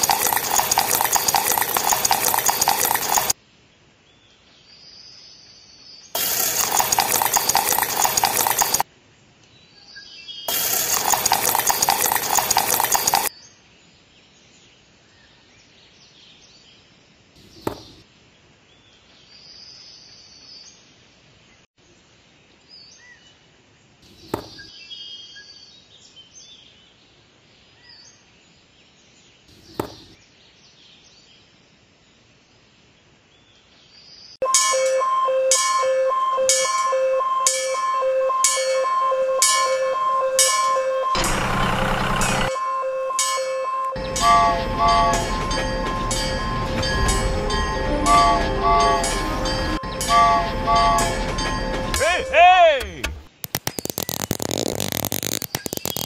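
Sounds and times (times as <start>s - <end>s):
plastic parts clicking: 53.0s - 56.0s.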